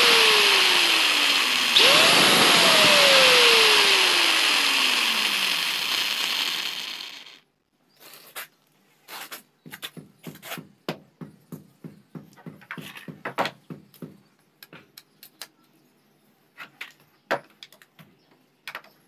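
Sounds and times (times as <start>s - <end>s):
tools knocking on wooden plank: 9.9s - 14.2s.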